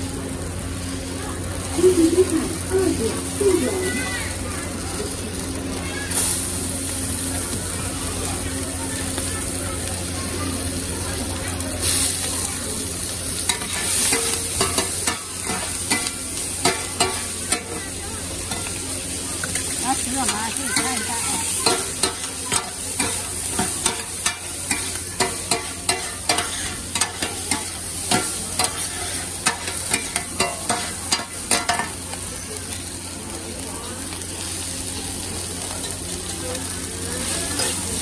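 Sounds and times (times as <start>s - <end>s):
meat and vegetables sizzling: 0.0s - 38.0s
metal spatulas scraping griddle: 13.4s - 32.0s.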